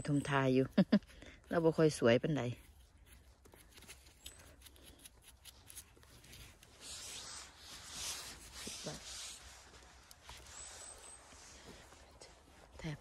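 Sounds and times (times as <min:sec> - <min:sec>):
knife scraping mushroom stem: 0:02.6 - 0:10.7.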